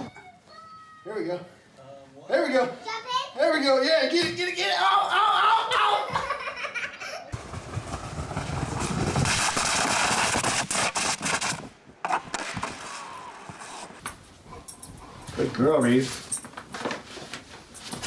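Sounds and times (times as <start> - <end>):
people laughing: 5.8 - 7.4
kayak scraping down concrete steps: 7.4 - 14.0.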